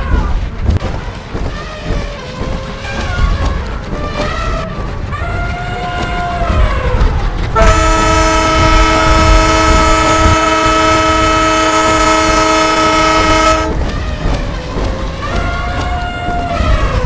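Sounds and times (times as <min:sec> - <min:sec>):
train low rumble: 0:00.0 - 0:17.0
train air horn chord: 0:07.6 - 0:13.7.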